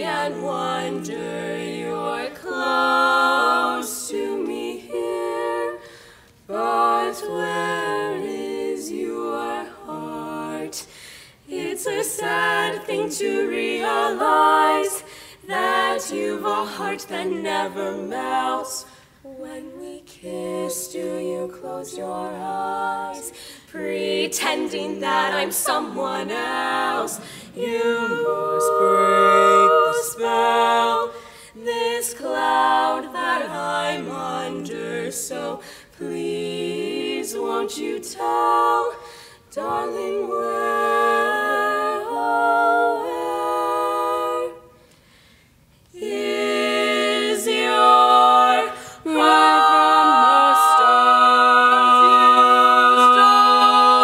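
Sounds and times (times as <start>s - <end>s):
female quartet singing a cappella: 0.0s - 54.0s.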